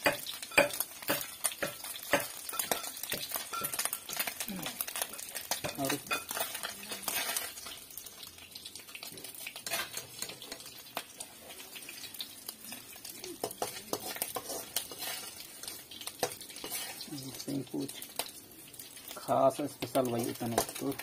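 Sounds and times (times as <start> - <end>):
oil sizzling in a pan: 0.0 - 21.0
metal spoon scraping and clinking: 0.1 - 4.3, 4.9 - 7.8, 9.6 - 10.6, 13.4 - 17.1.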